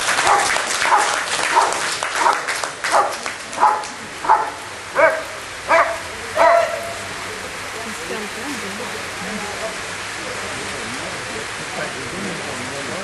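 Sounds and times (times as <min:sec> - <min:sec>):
dog barking high-pitched: 0:00.2 - 0:07.0.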